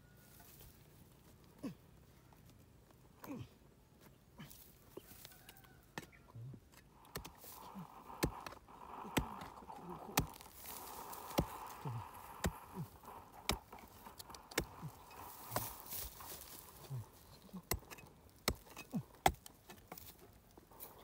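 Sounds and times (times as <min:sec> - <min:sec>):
metal hoe chopping dry ground: 0:05.9 - 0:21.0.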